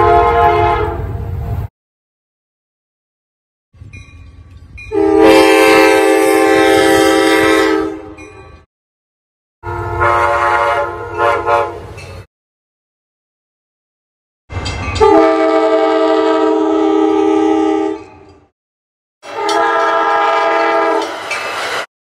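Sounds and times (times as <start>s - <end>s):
train horn chord: 0.0s - 1.1s, 4.9s - 8.2s, 9.6s - 11.9s, 15.0s - 18.1s, 19.2s - 21.2s
moving train rumble: 0.0s - 1.7s, 3.8s - 8.7s, 9.6s - 12.3s, 14.5s - 18.5s, 19.2s - 21.9s.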